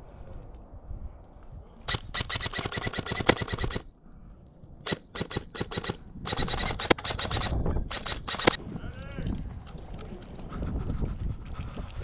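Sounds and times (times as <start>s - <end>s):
airsoft gun firing bursts: 1.9s - 3.9s, 4.9s - 8.6s.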